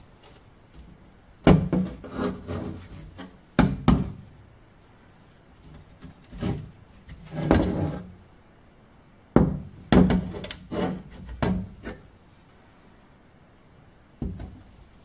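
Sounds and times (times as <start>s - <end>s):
rubbing scrape: 1.8s - 3.4s, 5.4s - 8.1s, 10.3s - 12.5s.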